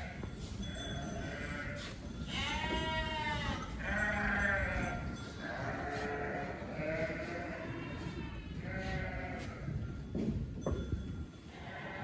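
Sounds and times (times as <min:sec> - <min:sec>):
sheep bleating: 0:01.2 - 0:09.8.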